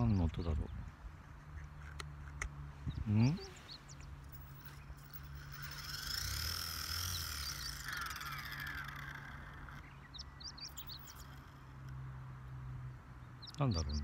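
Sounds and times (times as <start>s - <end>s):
birds chirping: 0.0s - 14.0s
steady low hum: 0.2s - 14.0s
toy helicopter motor whining: 4.3s - 10.0s, 10.6s - 11.8s.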